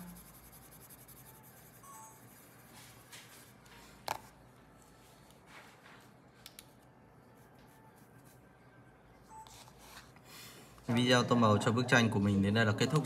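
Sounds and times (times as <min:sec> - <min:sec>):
pencil scratching on paper: 0:00.0 - 0:03.1.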